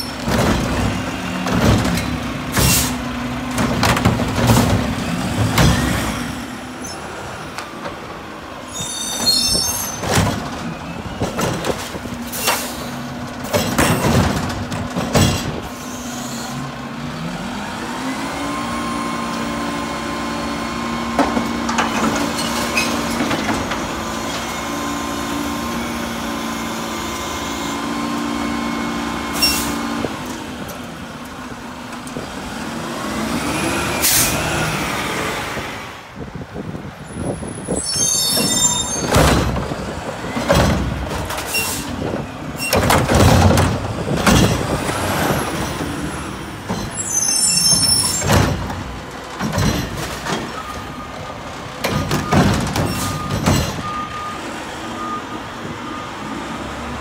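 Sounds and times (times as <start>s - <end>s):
metal clanks and knocks: 9.9s - 15.7s, 39.0s - 44.8s, 47.7s - 50.7s, 51.8s - 54.0s
garbage truck engine running: 38.4s - 57.0s.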